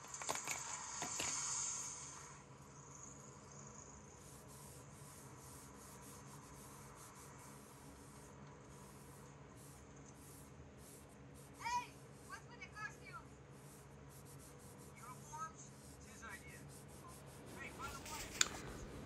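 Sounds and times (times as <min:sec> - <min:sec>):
sponge wiping on leather: 0:04.1 - 0:19.0.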